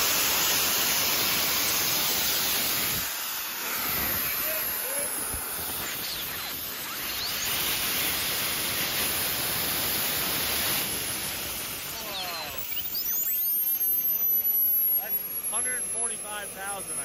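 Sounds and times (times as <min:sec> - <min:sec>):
model jet turbine running: 0:00.0 - 0:17.0.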